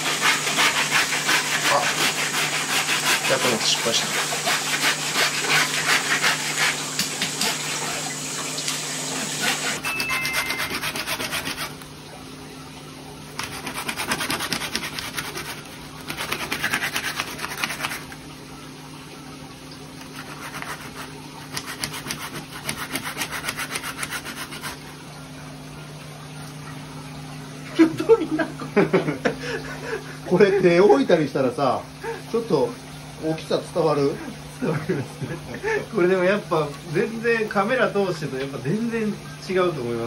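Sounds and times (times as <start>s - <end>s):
filleting knife rasping along bone: 0.0s - 8.0s, 9.2s - 11.8s, 13.4s - 18.1s, 20.0s - 24.9s
knife scraping fish scales: 0.0s - 8.0s, 9.2s - 11.8s, 13.4s - 18.2s, 20.0s - 25.0s.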